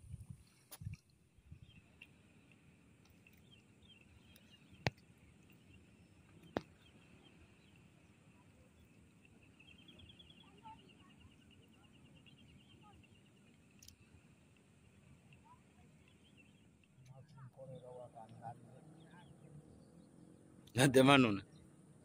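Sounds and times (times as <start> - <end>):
faint high chirping and trilling: 6.2 - 14.4.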